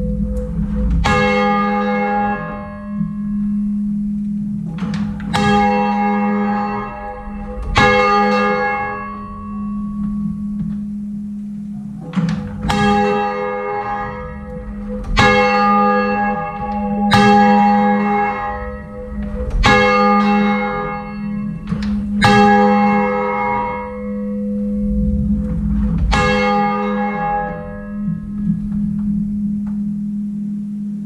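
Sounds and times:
church bell striking loudly: 0.0 - 30.6
fainter church bells: 0.0 - 31.0
low rumble: 0.0 - 31.0.

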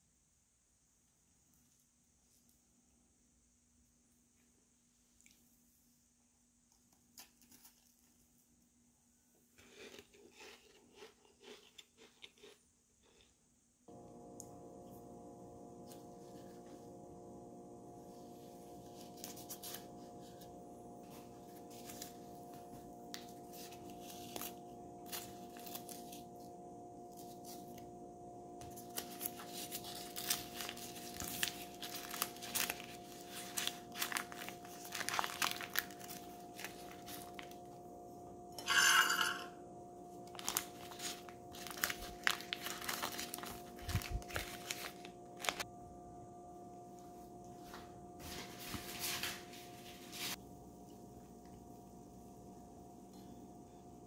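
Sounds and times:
faint steady hum: 0.0 - 54.0
leaf wrapping crinkling and tearing: 7.2 - 8.2, 18.8 - 20.5, 21.2 - 26.5, 27.1 - 27.9, 28.6 - 37.7, 40.2 - 45.7.

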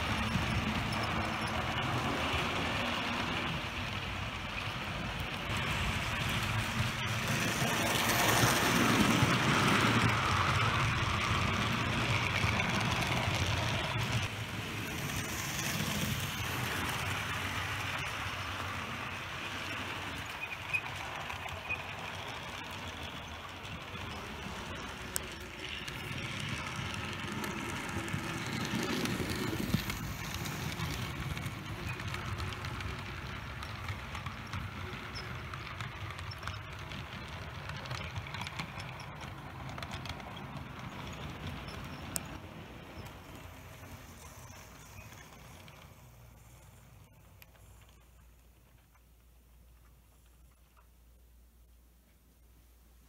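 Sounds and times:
model train whirring along track: 0.0 - 52.2.

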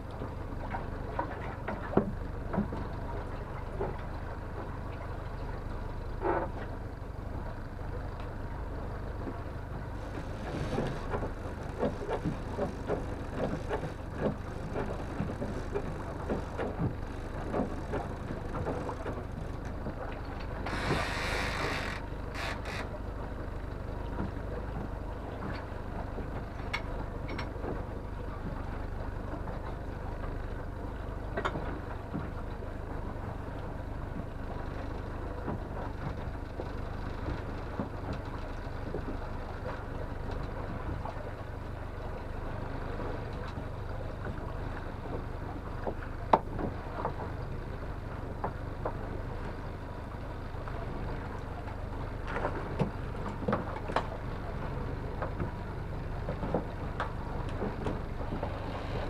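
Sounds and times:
outboard motor running: 0.0 - 59.0
gear knocking and clattering: 10.0 - 22.9.

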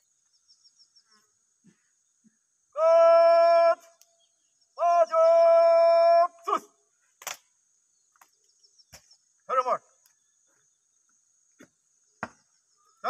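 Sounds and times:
man shouting commands: 2.8 - 4.0, 4.8 - 6.8, 9.5 - 9.9
sharp crack: 7.2 - 7.5.

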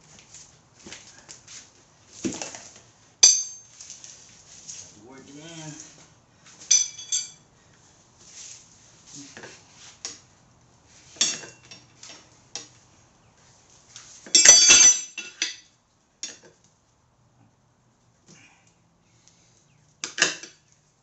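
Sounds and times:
tire levers clinking on rim: 2.4 - 4.1, 6.6 - 7.5, 14.1 - 16.8.

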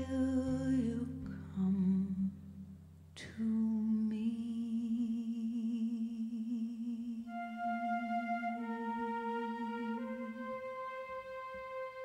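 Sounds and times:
low orchestral chord: 7.3 - 12.0.

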